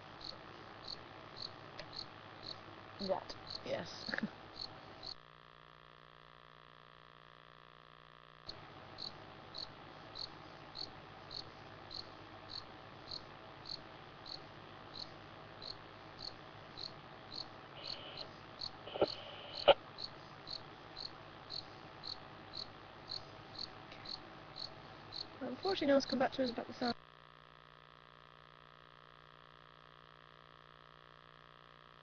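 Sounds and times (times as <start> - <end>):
faint steady hum: 0.0 - 32.0
cricket chirping: 0.2 - 2.6, 3.4 - 5.2, 9.0 - 25.4.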